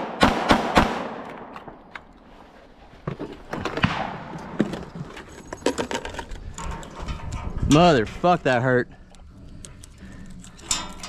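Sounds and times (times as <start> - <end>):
pistol shots: 0.0 - 1.8.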